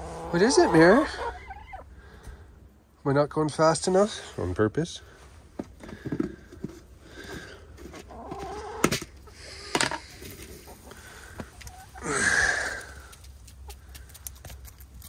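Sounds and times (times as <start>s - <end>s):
hens clucking softly: 0.0s - 1.9s, 6.1s - 14.5s.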